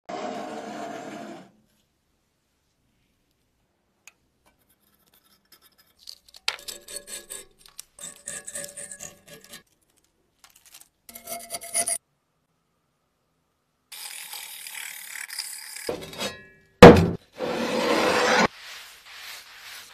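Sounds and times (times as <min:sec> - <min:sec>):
knife scraping rust off metal: 0:04.5 - 0:09.7, 0:11.1 - 0:12.0, 0:14.0 - 0:16.5.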